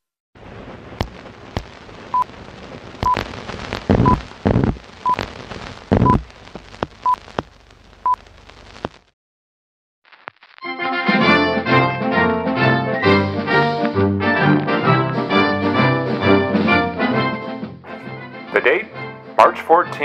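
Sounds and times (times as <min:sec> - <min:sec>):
sharp pops: 0:00.9 - 0:07.6
worn film crackle: 0:01.0 - 0:09.1
heavy low thumps: 0:03.8 - 0:04.8, 0:05.9 - 0:06.2.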